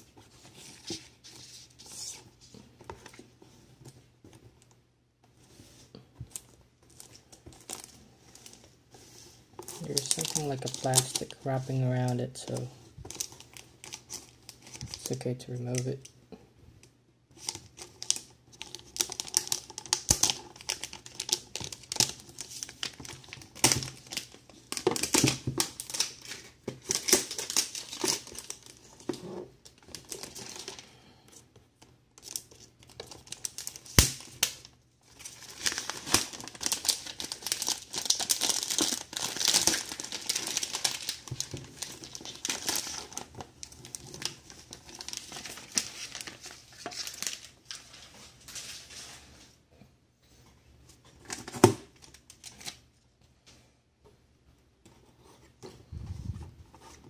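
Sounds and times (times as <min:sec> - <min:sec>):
plastic shrink wrap crinkling: 0:09.6 - 0:16.1, 0:17.4 - 0:31.0, 0:32.1 - 0:49.4.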